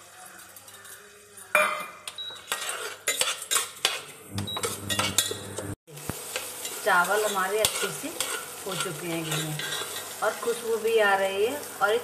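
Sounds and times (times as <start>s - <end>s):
faint sizzle: 0.0s - 12.0s
ladle scraping metal pot: 2.5s - 5.6s, 7.6s - 10.1s.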